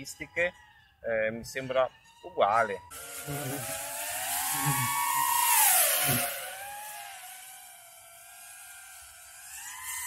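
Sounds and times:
drone motors whining: 0:02.6 - 0:10.0
propeller and wind hiss: 0:02.9 - 0:10.0.

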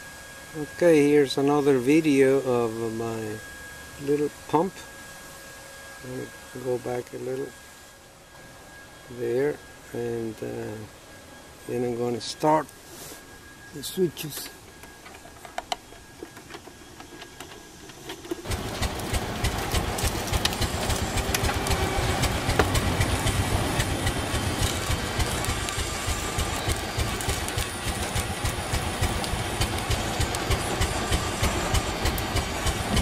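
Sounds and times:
model pumpjack motor clattering: 0:15.1 - 0:33.0.

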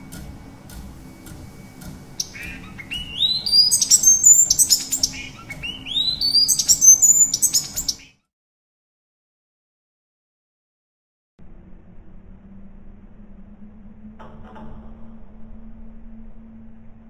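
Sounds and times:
faint clicks: 0:00.0 - 0:08.1
bird whistled song: 0:01.1 - 0:08.2.

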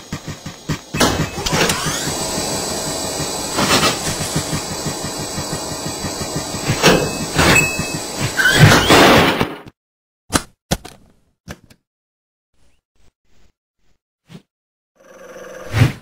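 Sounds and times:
feet thumping on treadmill belt: 0:00.0 - 0:08.4
treadmill motor whine: 0:00.0 - 0:08.9.

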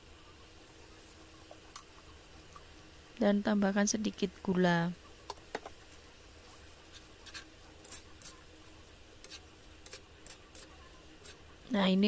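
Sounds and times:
faint steady hiss: 0:00.0 - 0:12.0
spatula scraping a wok: 0:06.4 - 0:11.6.

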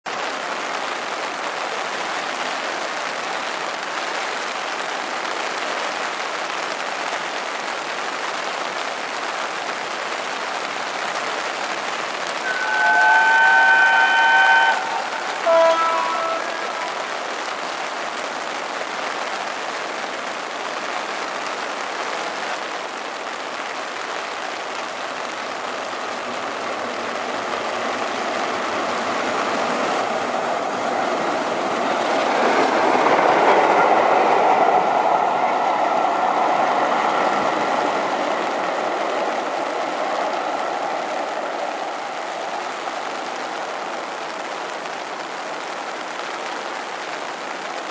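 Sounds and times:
heavy rain: 0:00.0 - 0:47.9
steam locomotive passing: 0:12.4 - 0:17.3, 0:25.7 - 0:43.4.

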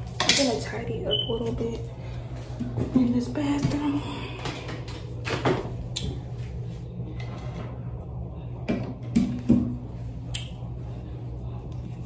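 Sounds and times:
steady low hum: 0:00.0 - 0:12.0
objects knocking and clattering: 0:04.4 - 0:05.8.

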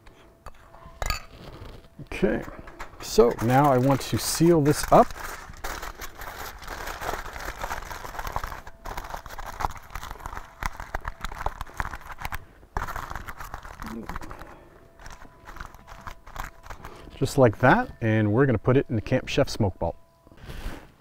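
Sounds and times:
aluminum foil crinkling: 0:00.6 - 0:18.0.

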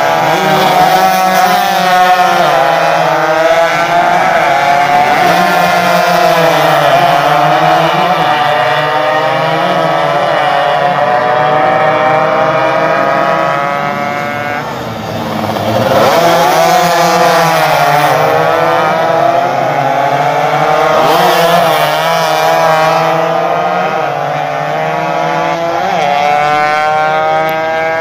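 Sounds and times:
racing motorcycles revving: 0:00.0 - 0:28.0.

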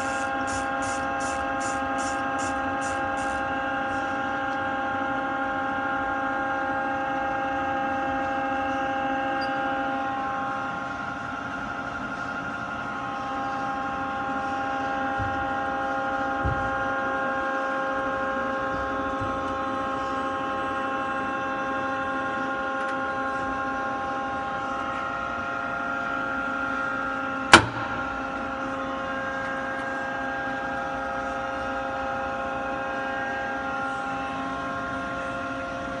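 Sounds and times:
machine motors humming: 0:00.0 - 0:36.0.

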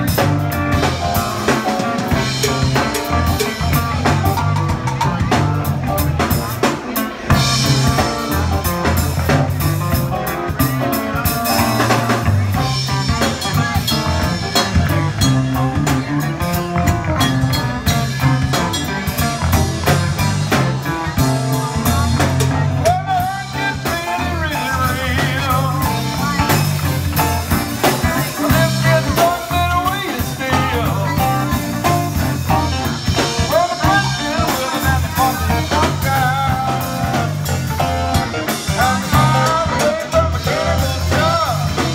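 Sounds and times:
soul band playing: 0:00.0 - 0:41.9.

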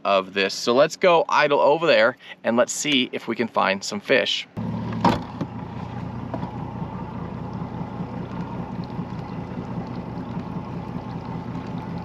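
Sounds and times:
outboard motor idling: 0:04.6 - 0:12.0.

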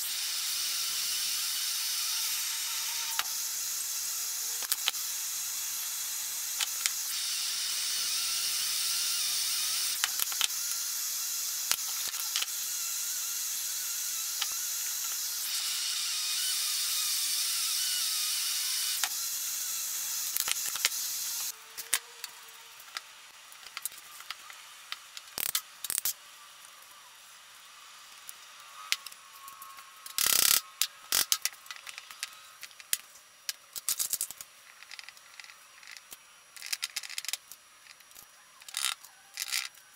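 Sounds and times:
copper pipe pieces clicking: 0:04.6 - 0:05.0, 0:09.9 - 0:10.6, 0:20.3 - 0:22.3, 0:23.6 - 0:26.2, 0:28.9 - 0:39.8.

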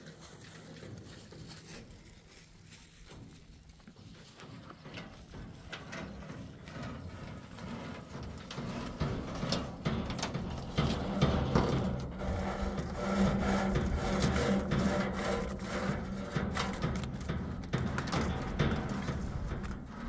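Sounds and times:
low hum: 0:05.9 - 0:20.0
rope rubbing across sack and metal: 0:06.6 - 0:20.0.

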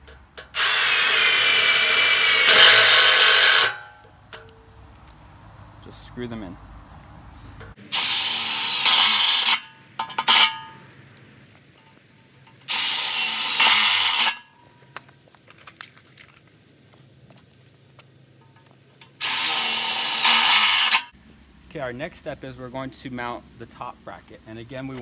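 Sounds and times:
impact driver driving screws into metal: 0:08.1 - 0:10.7.

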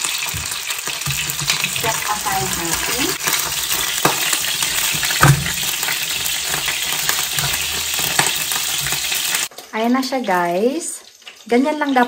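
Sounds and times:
oil sizzling in frying pan: 0:00.0 - 0:12.0
utensils knocking against pan: 0:00.2 - 0:09.4.

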